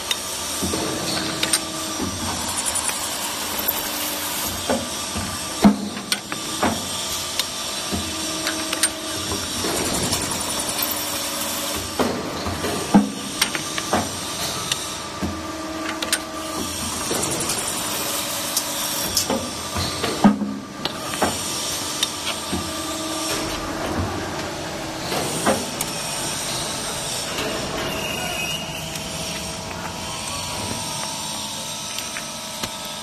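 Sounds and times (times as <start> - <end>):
machine humming with whine: 20.6 - 33.0.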